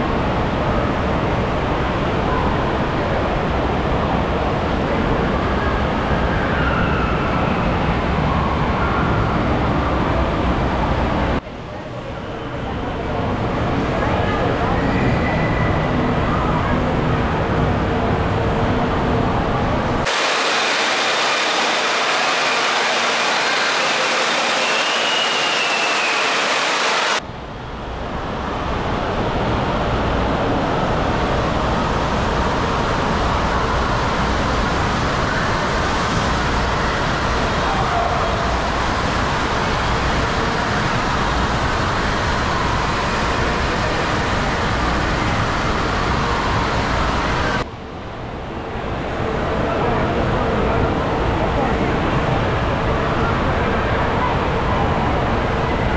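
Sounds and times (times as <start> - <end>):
echoing din of many voices: 0.0 - 55.9
flowing and splashing water: 20.1 - 27.2.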